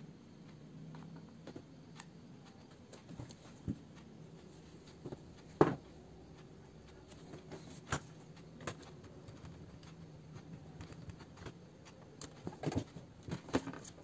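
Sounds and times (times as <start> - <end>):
low steady hum: 0.0 - 14.0
tools clicking on laptop parts: 4.9 - 14.0.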